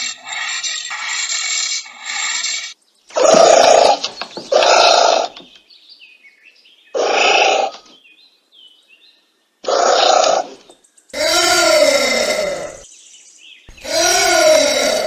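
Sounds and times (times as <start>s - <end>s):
anteater rasping calls: 3.1s - 5.4s, 7.0s - 7.8s, 9.6s - 10.6s, 11.2s - 12.8s.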